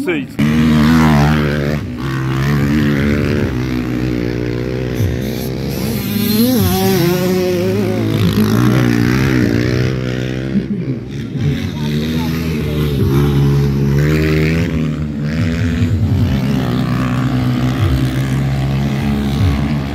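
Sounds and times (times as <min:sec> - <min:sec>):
dirt bike engines revving: 0:00.0 - 0:19.9.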